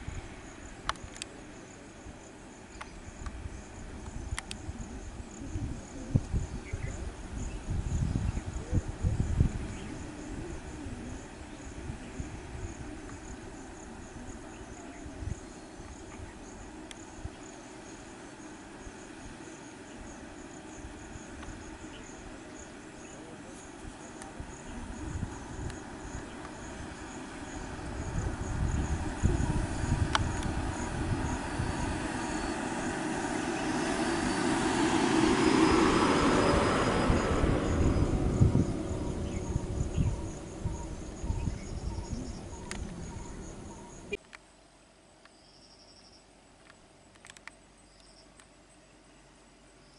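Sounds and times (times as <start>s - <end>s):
insects chirping: 0.0s - 49.9s
road vehicle passing: 20.3s - 44.2s
low rumble: 35.3s - 44.2s.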